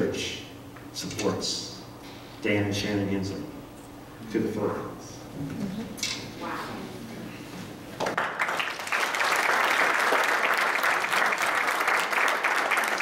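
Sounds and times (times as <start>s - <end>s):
congregation applauding: 8.0s - 13.0s.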